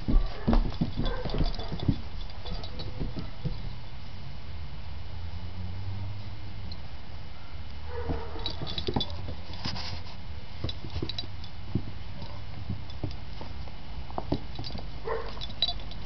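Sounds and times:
dog toenails clicking on concrete: 0:00.0 - 0:03.8, 0:10.6 - 0:16.0.

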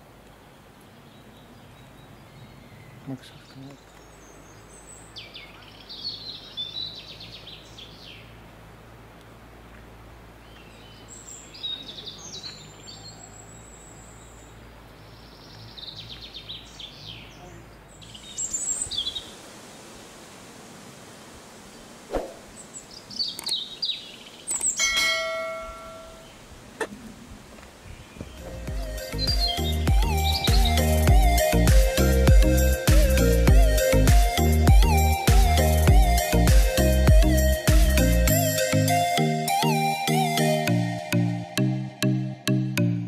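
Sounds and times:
small birds chirping: 0:00.0 - 0:08.5, 0:10.2 - 0:19.8, 0:21.6 - 0:40.6.

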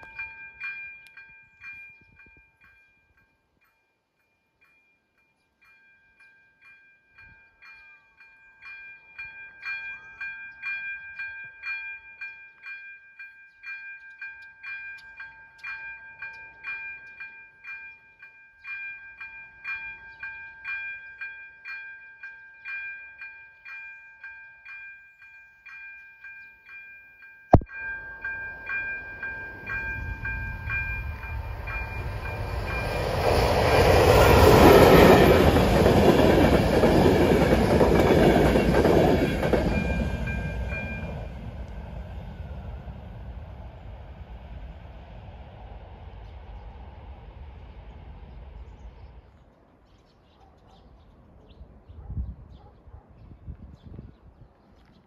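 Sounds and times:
level-crossing warning bell ringing: 0:00.0 - 0:42.2.

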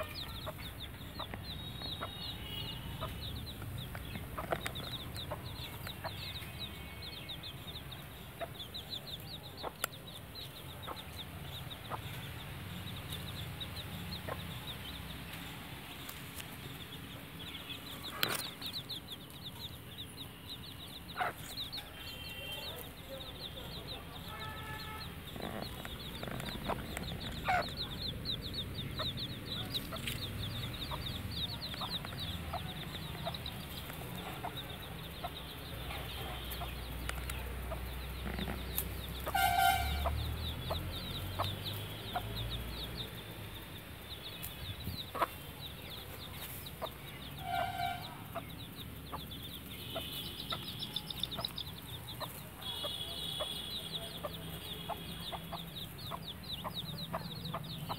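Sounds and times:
chicks peeping: 0:00.0 - 0:57.9.

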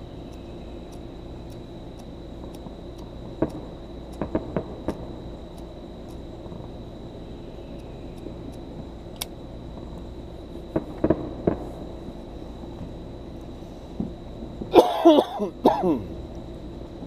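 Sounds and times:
distant firecrackers popping: 0:02.6 - 0:05.2, 0:10.7 - 0:12.0.

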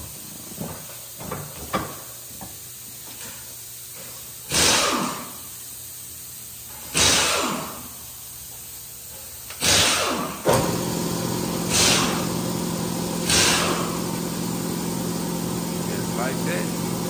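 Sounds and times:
compressed air hissing bursts: 0:03.7 - 0:08.8, 0:09.6 - 0:17.0
machine humming: 0:10.5 - 0:17.0.

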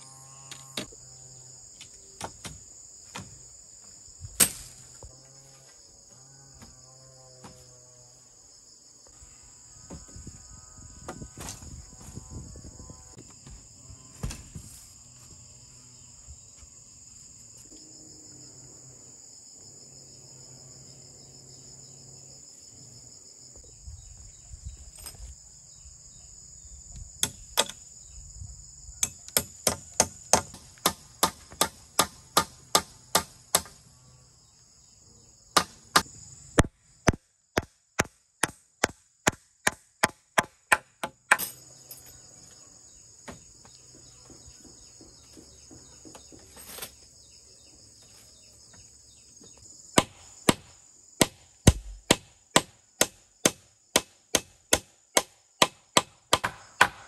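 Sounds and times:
insects droning: 0:00.0 - 0:57.0
blade chopping bamboo: 0:50.0 - 0:57.0.

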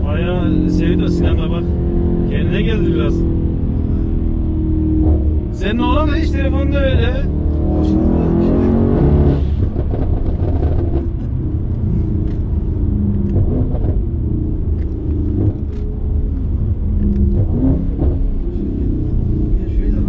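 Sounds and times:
car engine drone from inside: 0:00.0 - 0:20.0.

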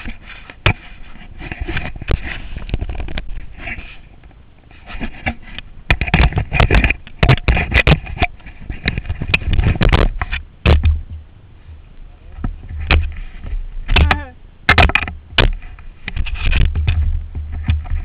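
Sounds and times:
wind buffeting on microphone: 0:00.0 - 0:18.0
camera mount knocks and scrapes: 0:04.8 - 0:11.2, 0:12.4 - 0:18.0.

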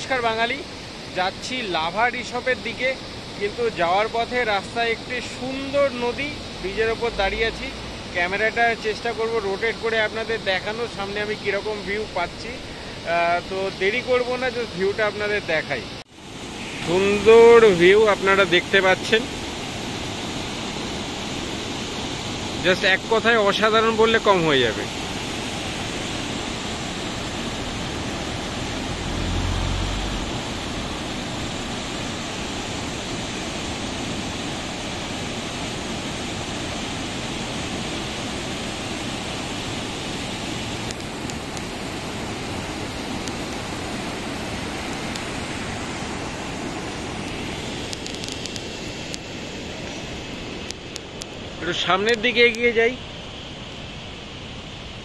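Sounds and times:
river rushing over rocks: 0:00.0 - 0:55.0.

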